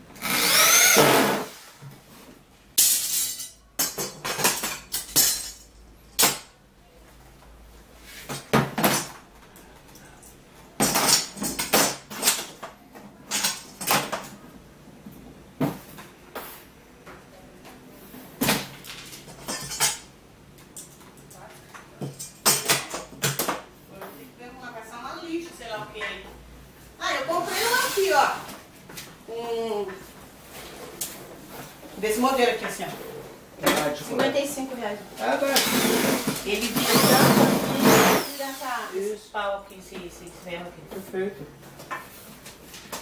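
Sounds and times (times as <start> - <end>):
electric drill driving screws: 0.2 - 1.5, 35.5 - 38.8.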